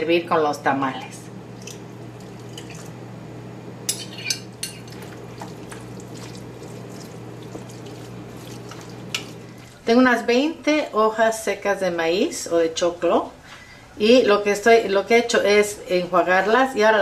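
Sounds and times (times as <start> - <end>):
spoon clinking on glass: 3.9 - 5.1
spoon stirring wet meat: 3.9 - 10.0
thick sauce pouring: 4.6 - 9.9.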